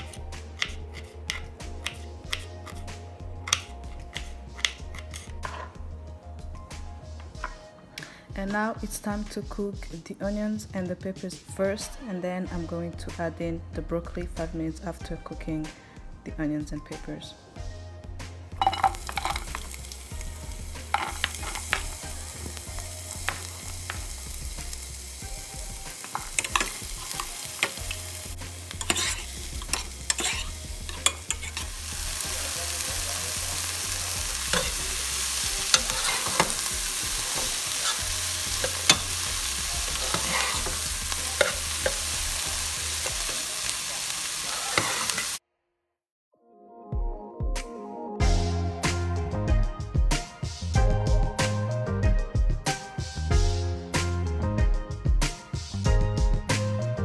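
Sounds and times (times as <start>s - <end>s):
vegetables sizzling in a pot: 0.0s - 2.8s, 18.6s - 45.4s
metal spoon scraping a pan: 0.0s - 5.8s, 18.6s - 20.2s, 20.8s - 24.1s, 25.9s - 45.4s.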